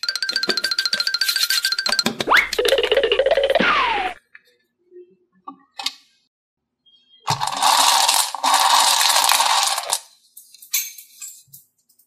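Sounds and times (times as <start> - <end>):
beads clattering in metal tin: 7.3 - 11.6.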